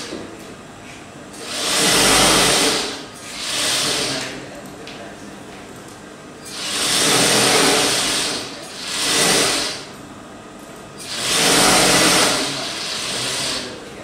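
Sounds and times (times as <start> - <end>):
sewing machine stitching: 1.4 - 4.3, 6.5 - 9.9, 11.0 - 13.8.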